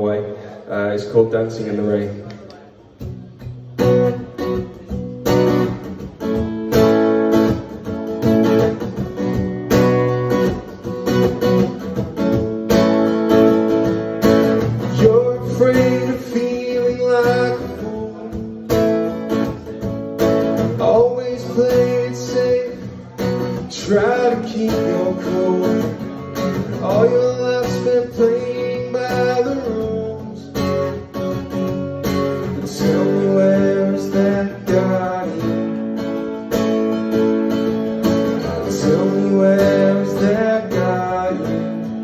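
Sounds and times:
acoustic guitar strumming: 2.8 - 42.0.

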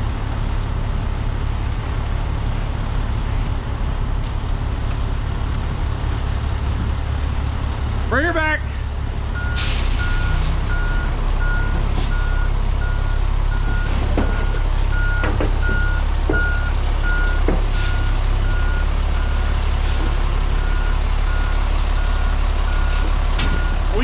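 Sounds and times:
diesel engine rumble: 0.0 - 24.0
truck backup alarm beeping: 9.3 - 24.0.

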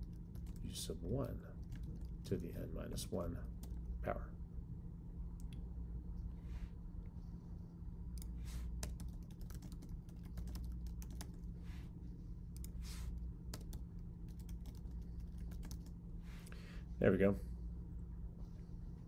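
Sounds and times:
computer keyboard typing: 0.0 - 2.5, 8.2 - 11.5, 13.5 - 16.0.

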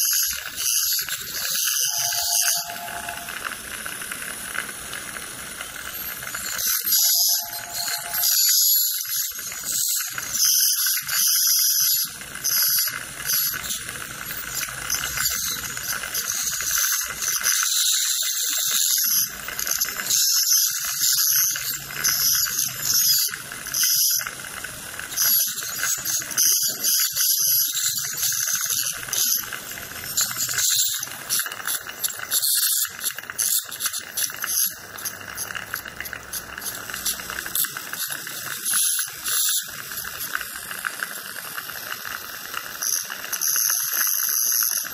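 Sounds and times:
dental handpiece high whine: 0.0 - 3.6, 5.6 - 24.4, 25.0 - 44.9
hissing and rattling: 0.1 - 44.9.

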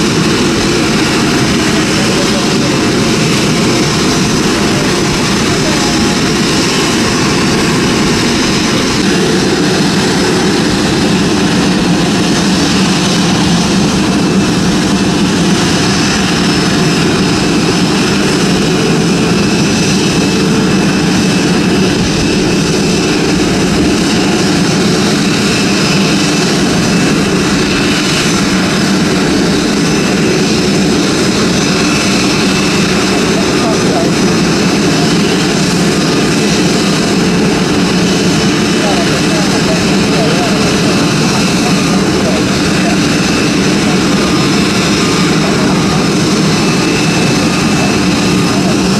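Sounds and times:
jet engine rumble with whine: 0.0 - 48.9.

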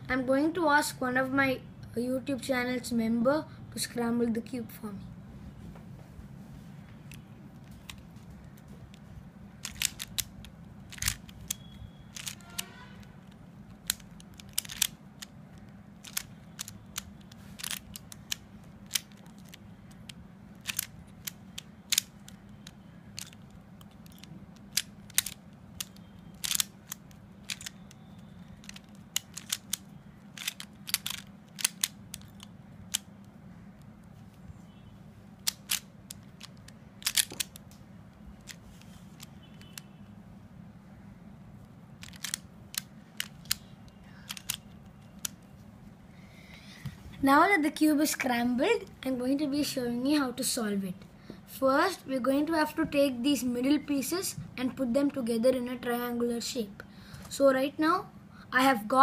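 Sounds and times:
puzzle cube clicking: 7.1 - 34.2, 35.4 - 37.8, 38.4 - 39.9, 42.0 - 45.5.

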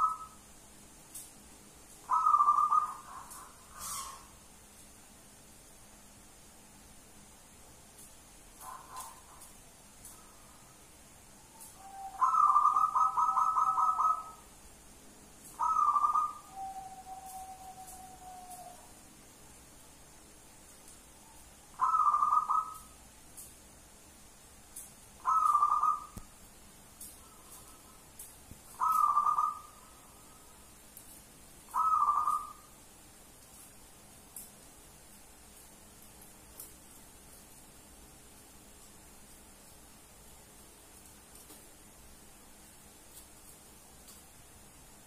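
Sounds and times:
dove cooing: 2.1 - 4.3, 11.8 - 14.4, 15.6 - 18.8, 21.8 - 22.9, 25.2 - 26.2, 28.8 - 29.8, 31.7 - 32.7.

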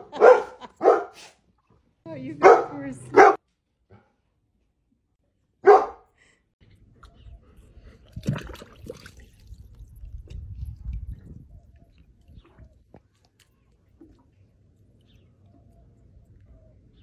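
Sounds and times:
dog barking: 0.0 - 1.2, 2.4 - 3.4, 5.6 - 6.1.

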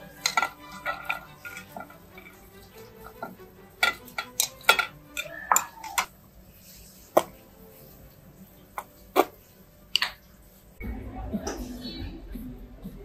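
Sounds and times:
metal tongs clinking on plate: 0.0 - 6.1.

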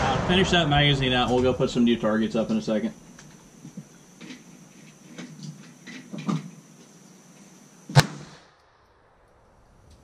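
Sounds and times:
pistol shot: 7.9 - 9.1.

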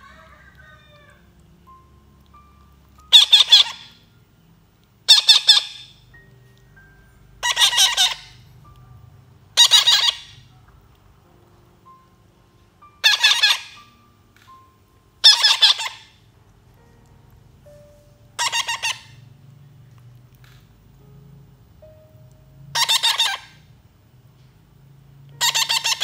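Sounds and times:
baby parrots begging calls: 3.1 - 4.0, 5.1 - 6.0, 7.4 - 8.4, 9.6 - 10.5, 13.0 - 13.9, 15.2 - 16.2, 18.4 - 19.2, 22.7 - 23.6, 25.4 - 26.0.

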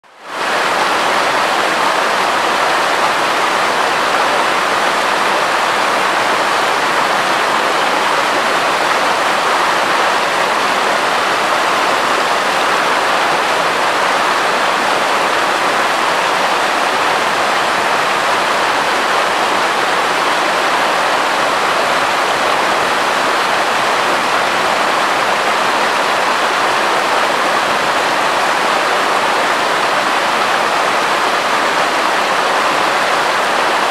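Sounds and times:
river rushing over boulders: 0.1 - 33.9.

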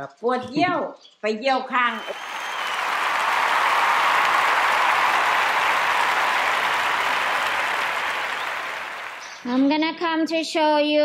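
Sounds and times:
applause: 1.9 - 9.6.

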